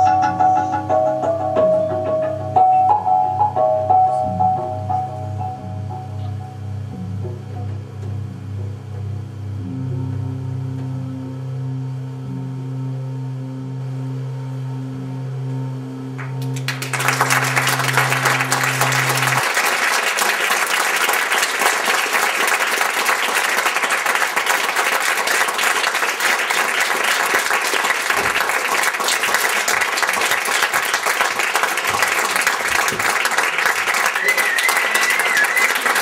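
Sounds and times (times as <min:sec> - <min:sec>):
low music drone: 0:00.0 - 0:23.4
audience applauding: 0:16.2 - 0:36.0.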